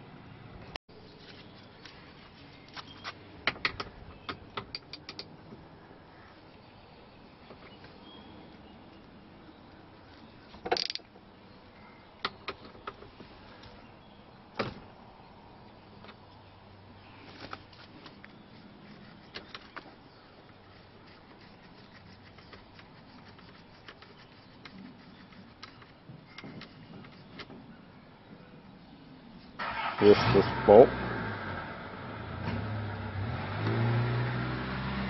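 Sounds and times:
plastic connectors clicking: 0:10.7 - 0:11.1.

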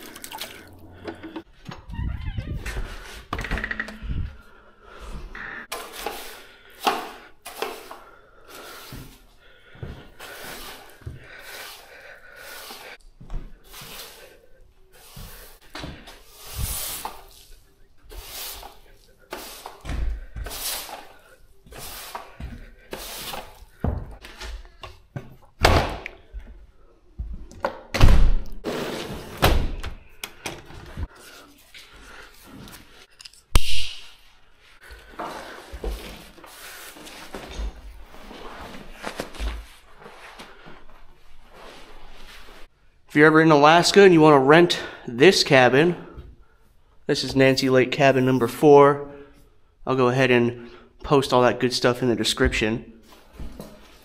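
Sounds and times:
objects knocking and clattering: 0:03.3 - 0:04.3.

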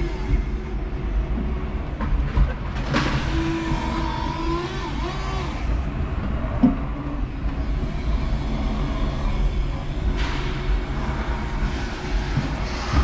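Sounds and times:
forklift motor whining: 0:02.8 - 0:11.6.

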